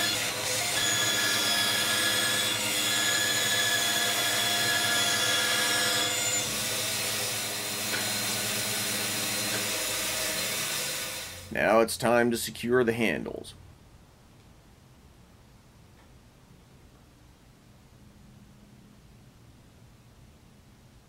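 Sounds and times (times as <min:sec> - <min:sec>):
bandsaw cutting wood: 0:00.0 - 0:11.6.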